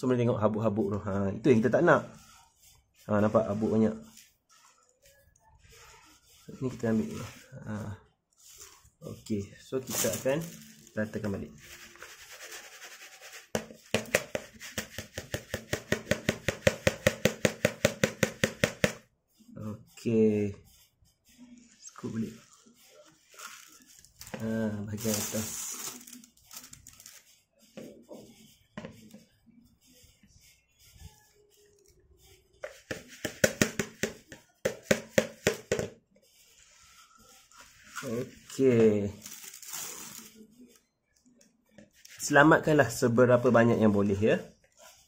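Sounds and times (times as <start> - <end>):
rice shaken in plastic basin: 9.8 - 15.7
plastic basin of rice knocking: 12.0 - 19.0, 32.6 - 36.0.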